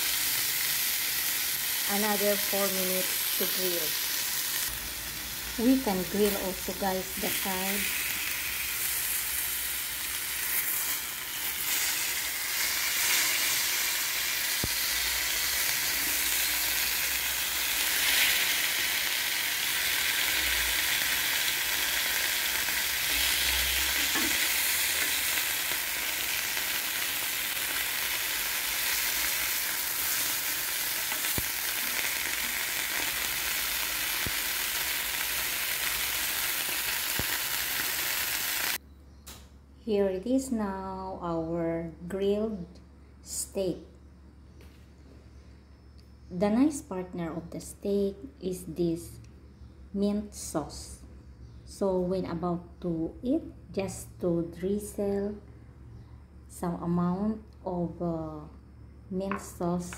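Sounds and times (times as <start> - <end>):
steaks sizzling in a grill pan: 0.0 - 38.8.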